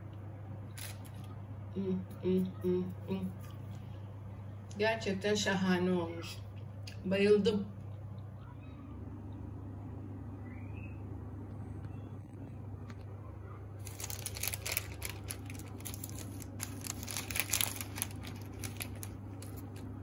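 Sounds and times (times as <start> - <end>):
steady low hum: 0.0 - 20.0
baking paper crinkling: 0.7 - 1.4, 13.8 - 20.0.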